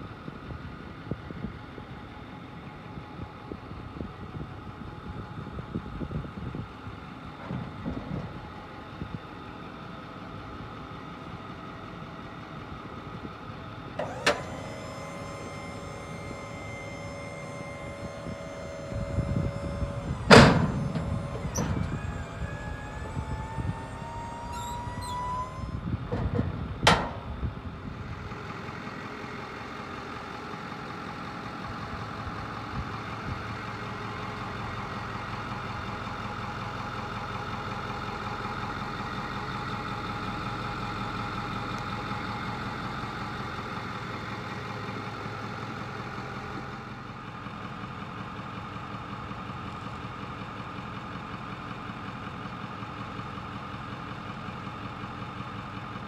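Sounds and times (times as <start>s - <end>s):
steady mechanical hum: 0.0s - 36.8s
electric pump whine: 14.0s - 29.6s
heavy metal platform thunk: 16.6s - 27.2s.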